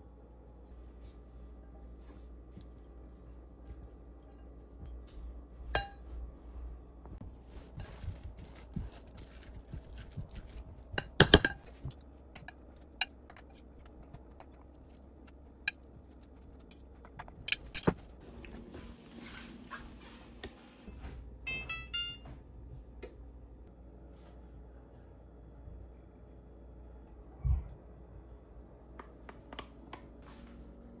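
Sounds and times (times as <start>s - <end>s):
spatula scraping filling: 7.3s - 18.2s.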